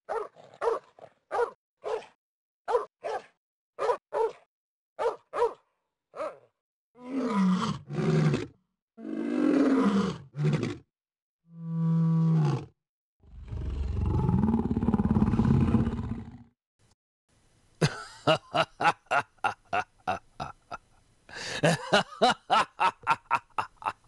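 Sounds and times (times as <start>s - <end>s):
dog barking: 0.1s - 6.5s.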